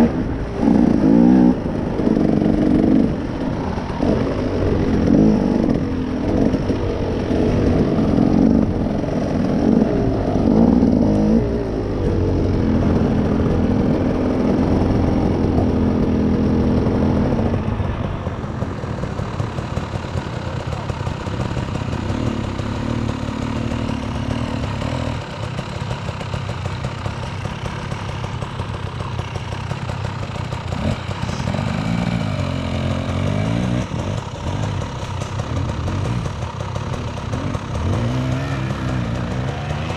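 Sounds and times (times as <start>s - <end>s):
off-road vehicle engine revving: 0.0s - 17.6s, 21.6s - 25.3s, 30.4s - 39.9s.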